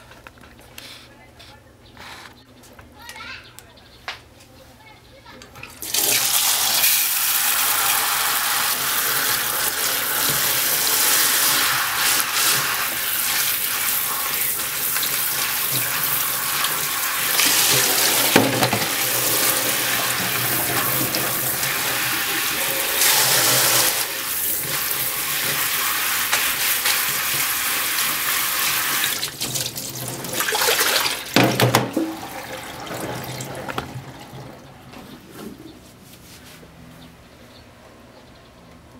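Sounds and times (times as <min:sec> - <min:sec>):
tap running into sink: 0:16.6 - 0:22.2, 0:28.9 - 0:34.1.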